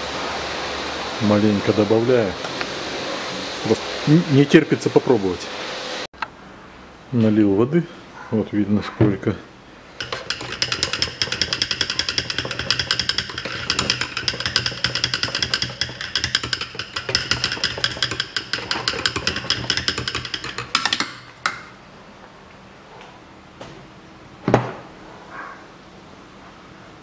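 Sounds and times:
metal rod rattling in plastic bottle: 10.0 - 21.7.

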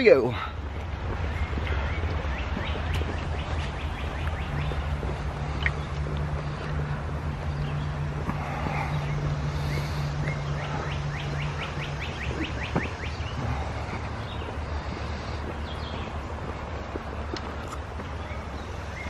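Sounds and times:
bird chirping trill: 0.0 - 6.0, 7.4 - 16.3.

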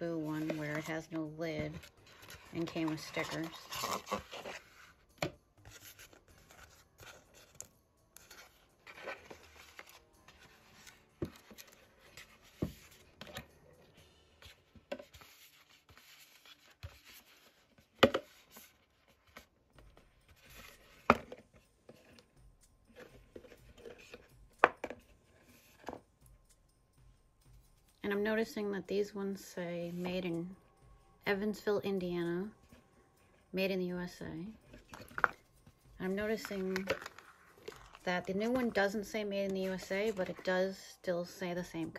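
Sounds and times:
plastic pails rubbing and rustling: 0.0 - 5.0, 36.0 - 40.5.

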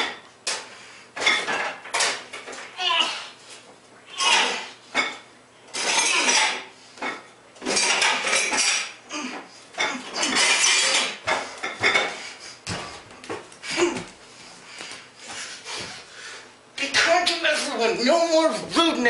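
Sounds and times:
dishes and pans clattering: 0.0 - 2.7, 4.2 - 9.0, 9.8 - 13.4.

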